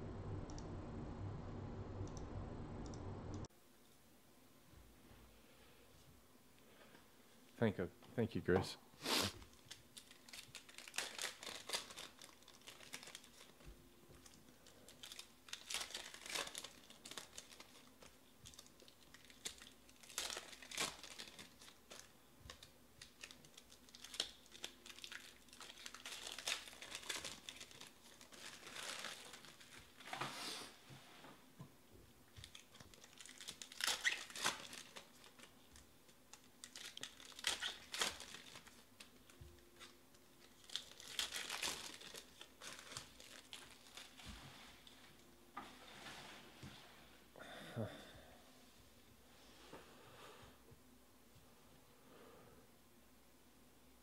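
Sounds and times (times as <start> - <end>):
foil packs crinkling and tearing: 9.6 - 30.2, 32.4 - 45.0.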